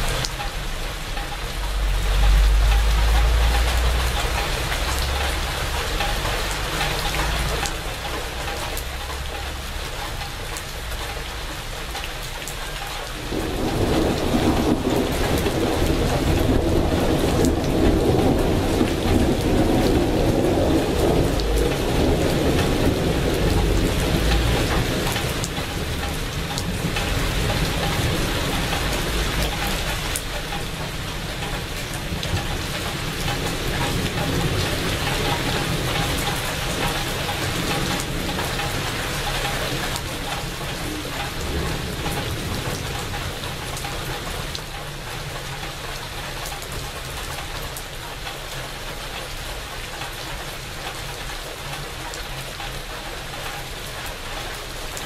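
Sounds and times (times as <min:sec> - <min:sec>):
rain on leaves and puddles: 0:00.0 - 0:55.0
thunder rolling: 0:13.2 - 0:30.2.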